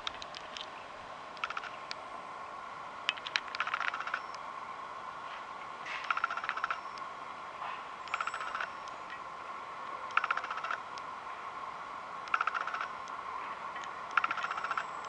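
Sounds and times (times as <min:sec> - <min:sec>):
faint high hum: 0:00.0 - 0:15.0
chirping trills of clicks: 0:01.4 - 0:02.0, 0:03.1 - 0:04.4, 0:06.0 - 0:07.1, 0:08.0 - 0:09.2, 0:09.8 - 0:10.8, 0:12.2 - 0:13.2, 0:13.8 - 0:15.0.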